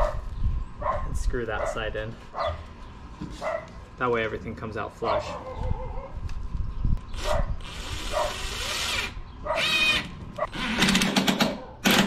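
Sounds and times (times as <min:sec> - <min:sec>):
cordless drill: 0:07.1 - 0:12.0.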